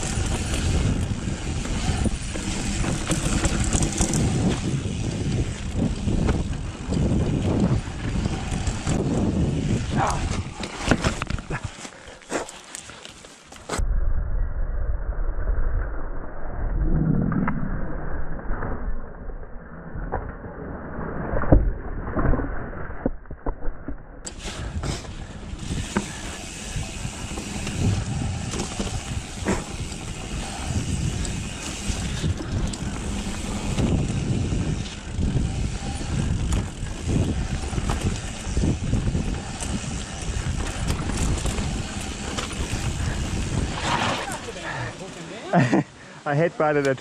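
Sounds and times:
wind noise on microphone: 0.0 - 11.7, 13.7 - 19.2, 20.0 - 44.8
bike rattling over bumps: 0.0 - 13.8, 24.2 - 45.5
bike tyre rumble on dirt: 0.0 - 19.2, 20.0 - 46.2.

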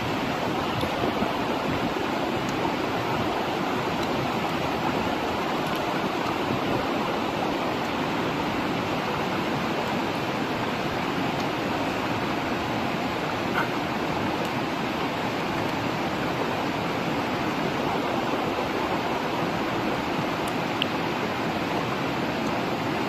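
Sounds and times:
running water rushing: 0.0 - 23.0.

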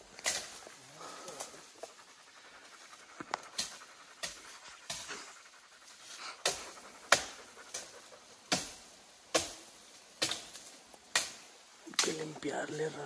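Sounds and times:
person panting: 0.6 - 7.7.

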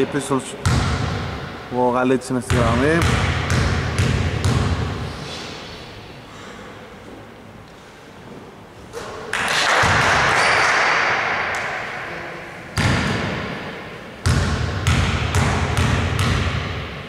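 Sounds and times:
basketball striking rim: 0.6 - 1.6, 2.5 - 5.0, 9.0 - 12.0, 12.8 - 17.0
basketball bouncing on hardwood: 2.5 - 4.9.

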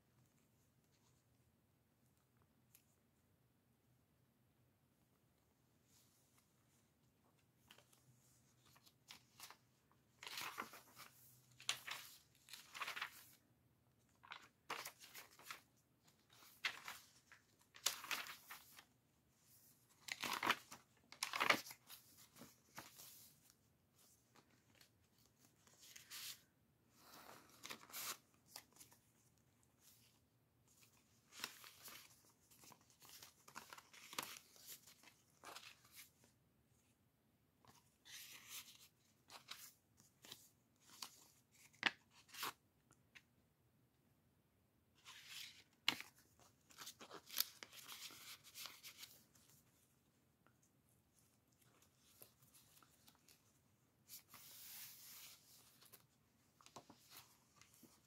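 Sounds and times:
paper pages rustling: 7.6 - 13.4, 14.0 - 18.9, 19.5 - 29.1, 29.7 - 36.3, 37.6 - 42.6, 45.0 - 49.9, 50.5 - 58.0.

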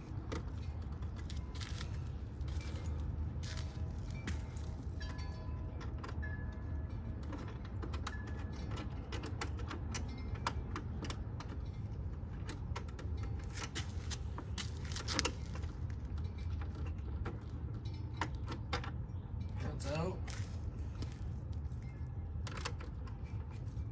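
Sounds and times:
steady low rumble: 0.0 - 7.3
hand tools clicking and clinking: 0.1 - 23.9.

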